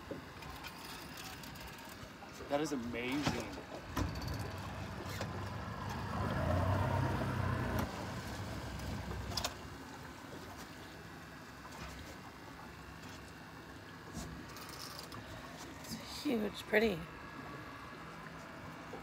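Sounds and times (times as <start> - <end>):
boat rumbling on water: 3.3 - 14.4.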